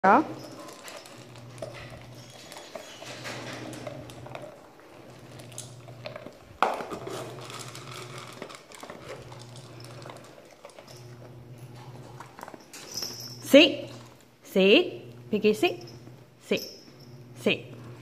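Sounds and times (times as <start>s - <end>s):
dog licking and chewing: 0.4s - 13.1s.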